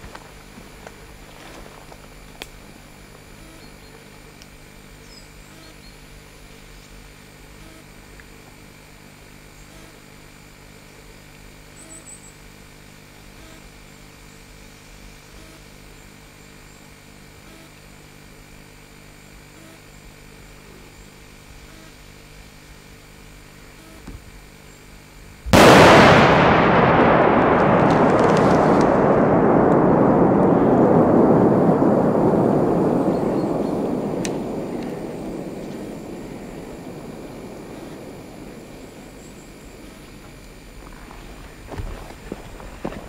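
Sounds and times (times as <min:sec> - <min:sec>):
faint crackles: 0:00.0 - 0:05.8, 0:25.6 - 0:43.0
steady low hum: 0:00.0 - 0:43.0
firework blast: 0:25.5 - 0:43.0
sustained rushing noise: 0:25.6 - 0:40.9.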